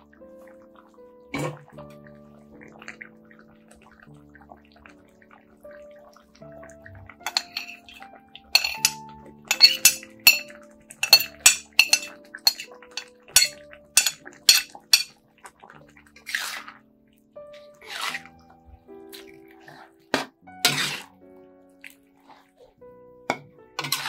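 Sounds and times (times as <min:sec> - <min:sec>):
kitchenware clinking against a wok: 0:07.2 - 0:15.1, 0:23.3 - 0:24.0.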